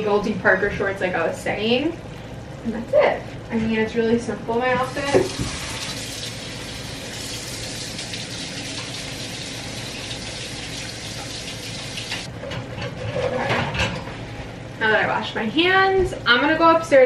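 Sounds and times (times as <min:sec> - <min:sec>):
tap water running: 0:04.8 - 0:12.3.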